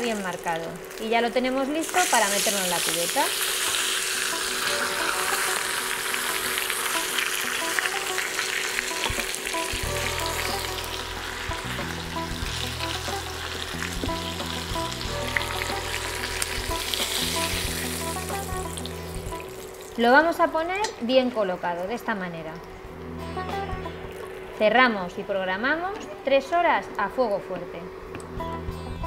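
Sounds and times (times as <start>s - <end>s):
chicken sizzling in hot oil: 0.0s - 20.0s
background music with bassline: 9.0s - 19.8s, 22.8s - 24.6s, 28.0s - 29.0s.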